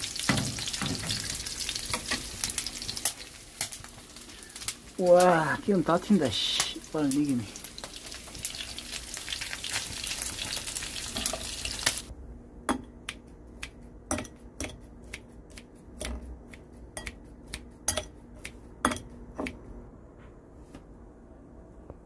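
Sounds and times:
pork sizzling in a frying pan: 0.0 - 12.1.

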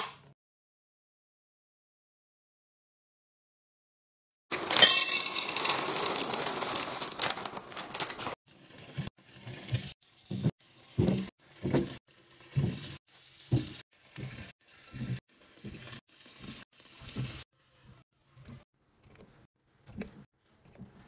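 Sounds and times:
nuts pouring into glass jar: 4.6 - 8.4
plastic snack bag crinkling: 4.7 - 8.4
water splashes and knocks in sink: 10.3 - 15.8.

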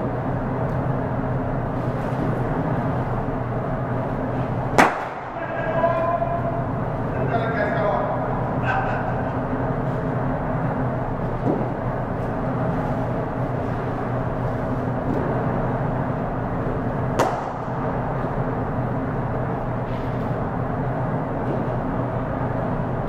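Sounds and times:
steady background hum: 0.0 - 23.0
cricket bat striking ball: 4.8 - 5.4, 17.2 - 17.7.

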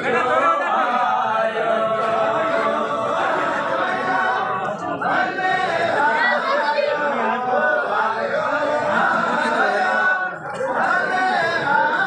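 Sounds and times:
group singing unaccompanied: 0.0 - 12.0.

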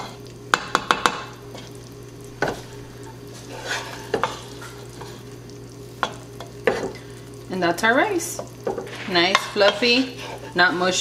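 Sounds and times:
spoon knocking against pot: 0.5 - 1.3.

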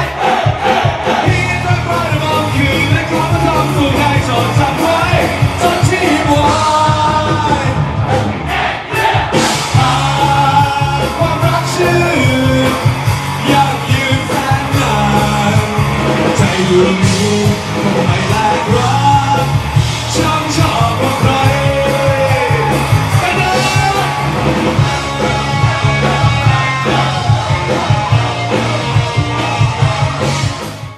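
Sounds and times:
man singing loudly: 0.0 - 8.0, 8.6 - 24.3, 25.2 - 30.3
drums: 0.0 - 30.9
electric guitar: 9.3 - 30.9.

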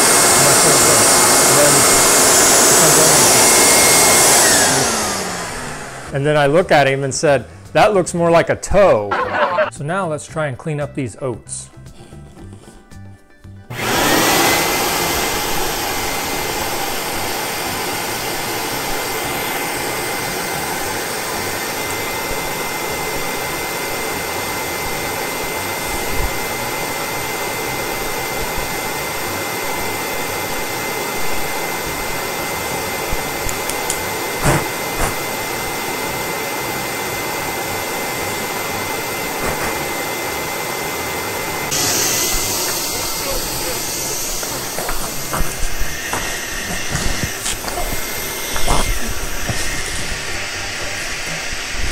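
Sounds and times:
vacuum cleaner running: 0.0 - 9.8, 13.7 - 51.9
knocks and rattles in hose: 33.2 - 35.4, 38.6 - 40.1.

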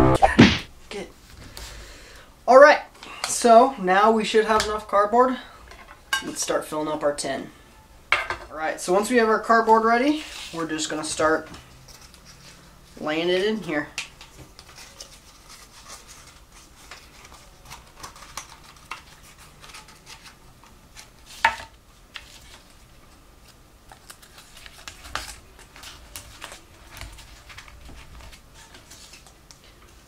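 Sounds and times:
cardboard rustling and scraping: 14.3 - 22.9, 24.0 - 29.4.

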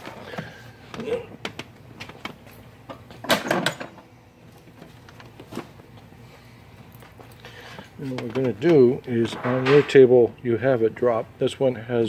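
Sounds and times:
metal clanks: 8.2 - 10.1.

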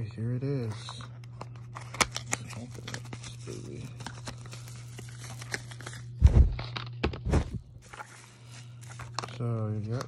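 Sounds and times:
bubble wrap crinkling: 1.7 - 6.9, 7.8 - 10.0
low hum: 3.8 - 9.1.

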